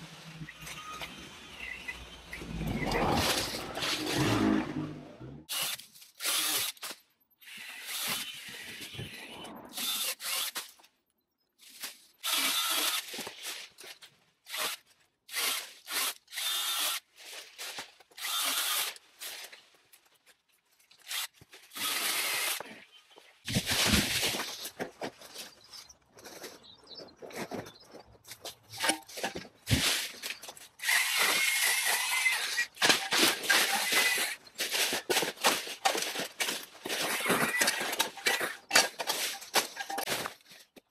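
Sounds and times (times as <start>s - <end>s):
power tool cutting branches: 0.0s - 10.7s, 12.2s - 19.6s, 21.0s - 22.8s, 28.7s - 40.5s.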